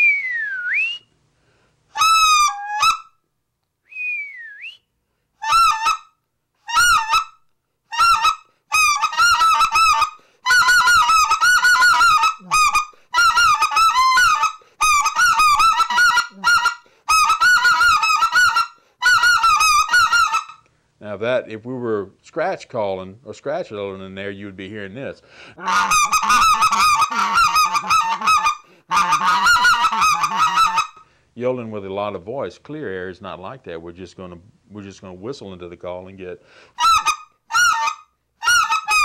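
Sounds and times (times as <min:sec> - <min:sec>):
goose call honking: 0:08.0 - 0:20.6, 0:25.6 - 0:31.0, 0:36.8 - 0:39.0.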